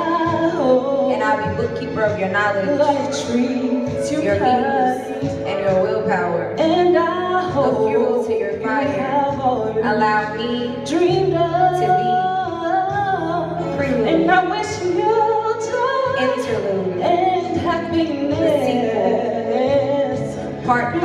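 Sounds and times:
low musical backing: 0.0 - 21.0
woman singing: 0.0 - 21.0.

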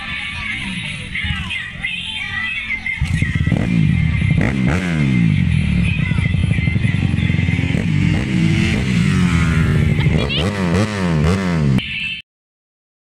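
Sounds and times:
motorcycle engine revving: 3.0 - 11.9.

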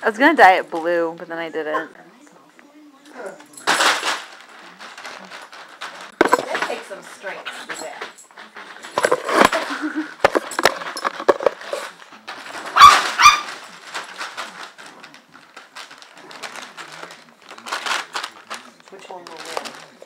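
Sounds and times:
dog paws scrabbling: 3.2 - 20.0
plastic crinkling: 3.6 - 7.1, 8.4 - 20.0
dog high-pitched cries: 12.8 - 13.5.

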